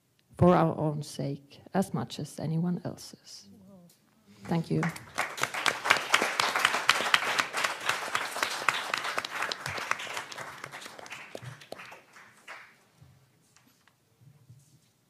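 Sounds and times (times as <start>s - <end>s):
audience applauding: 4.5s - 12.9s.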